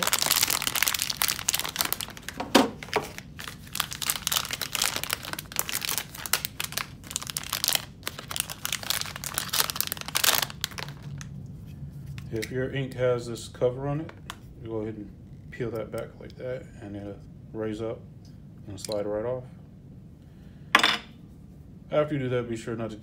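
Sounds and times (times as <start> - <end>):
foil pouch crinkling: 0.0 - 11.3.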